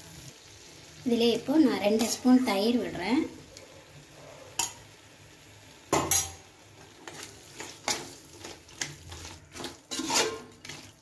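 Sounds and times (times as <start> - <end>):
spoon clinking against pot: 5.9 - 6.4
metal spoon scraping a pot: 7.0 - 11.0.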